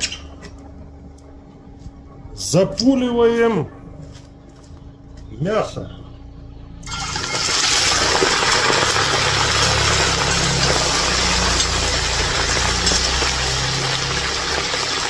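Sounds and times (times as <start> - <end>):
meat sizzling in hot oil: 6.8 - 15.0.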